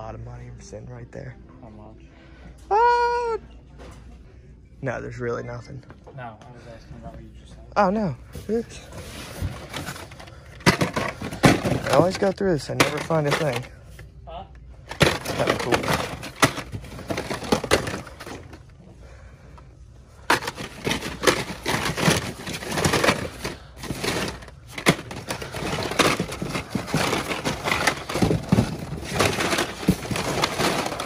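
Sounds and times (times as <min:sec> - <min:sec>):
blister packs rustling and clacking: 0:08.4 - 0:13.8, 0:14.8 - 0:18.8, 0:20.2 - 0:31.0.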